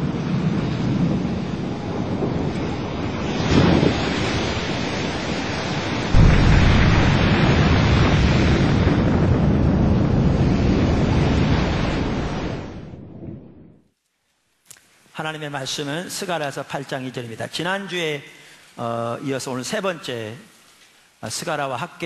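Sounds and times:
ocean waves crashing: 0.1 - 13.1.

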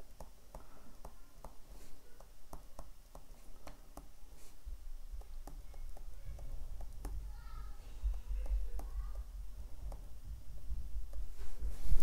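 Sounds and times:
stylus tapping on tablet: 0.0 - 1.6, 2.2 - 4.2, 5.2 - 7.2, 8.0 - 9.0, 9.8 - 11.3
low steady hum: 0.0 - 12.0.

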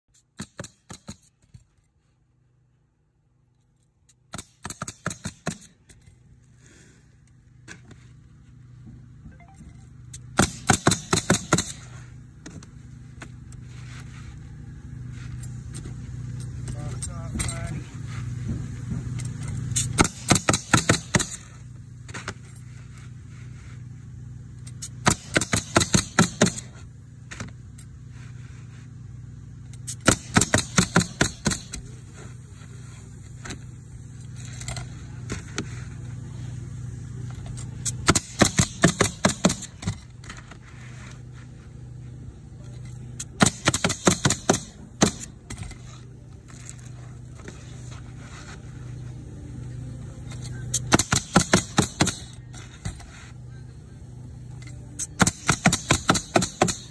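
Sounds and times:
steady low hum: 0.2 - 56.9
nail gun firing: 0.4 - 1.3, 4.3 - 5.8, 10.3 - 11.9, 19.8 - 21.6, 24.8 - 26.8, 29.9 - 31.9, 37.8 - 40.0, 43.2 - 45.7, 50.7 - 52.4, 55.0 - 56.9.

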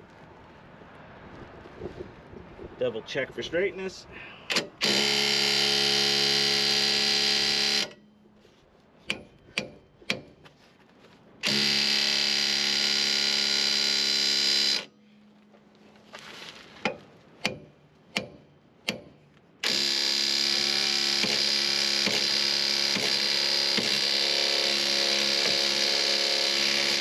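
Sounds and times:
cordless power tool spinning: 4.7 - 8.0, 11.4 - 14.9, 19.6 - 27.0.

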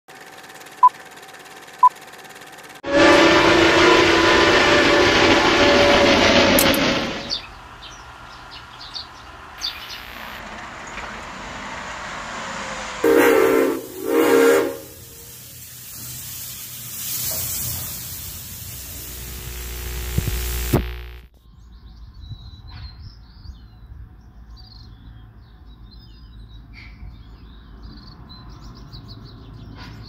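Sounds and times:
steam locomotive whistle: 2.8 - 7.4, 13.0 - 15.5
steam hissing: 11.2 - 21.2.

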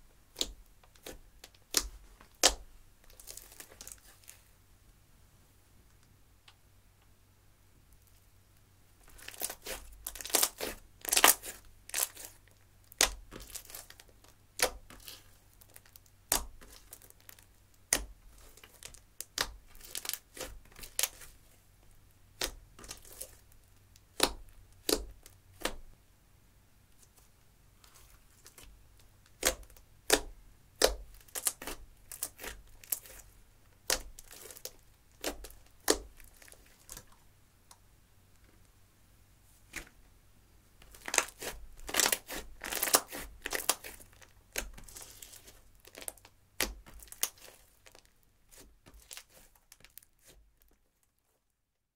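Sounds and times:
slime popping and crackling: 9.1 - 21.3, 29.3 - 33.2, 33.8 - 37.1, 40.8 - 50.3.

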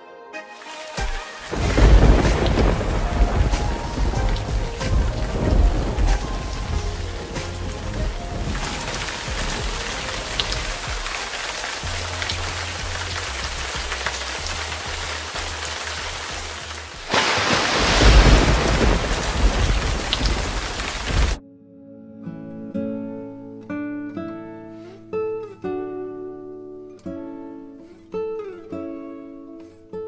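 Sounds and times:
river water rushing: 0.6 - 21.4
low rumble: 1.6 - 9.8.

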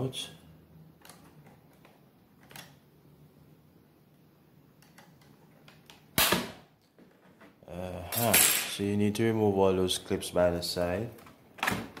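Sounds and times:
loud plastic clip snap: 5.8 - 6.6.

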